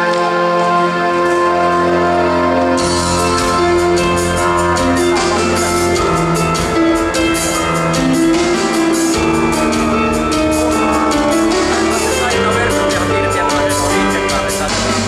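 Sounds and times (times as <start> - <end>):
instrumental music with drum beat: 0.0 - 15.0.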